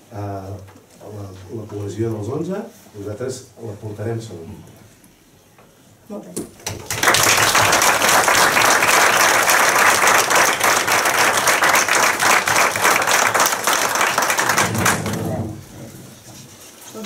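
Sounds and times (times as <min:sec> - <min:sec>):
group applauding: 0:06.6 - 0:15.6.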